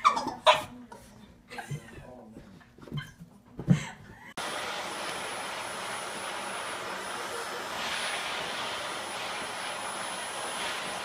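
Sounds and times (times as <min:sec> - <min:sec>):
vacuum cleaner running: 0:04.4 - 0:11.0.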